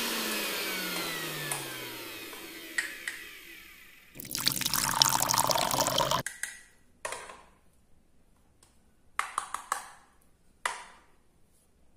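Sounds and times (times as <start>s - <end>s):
liquid pouring into plastic cup: 4.2s - 6.2s.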